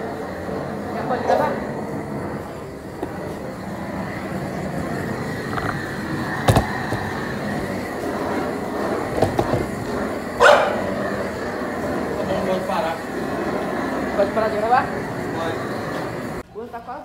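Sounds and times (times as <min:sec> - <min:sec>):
background rumble: 0:00.0 - 0:16.4
dog barking: 0:10.4 - 0:10.8.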